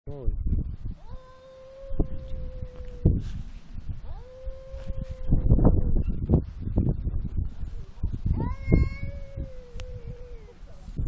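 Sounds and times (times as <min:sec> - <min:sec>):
cat yowling: 0:01.0 - 0:03.2, 0:04.1 - 0:05.4, 0:08.4 - 0:10.6.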